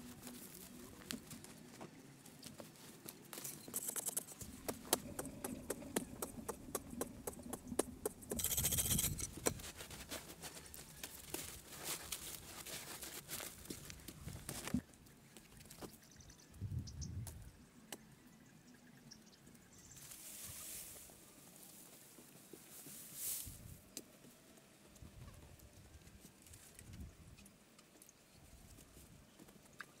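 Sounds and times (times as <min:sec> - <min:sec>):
digging in sandy soil: 0:02.5 - 0:14.8, 0:19.9 - 0:24.1.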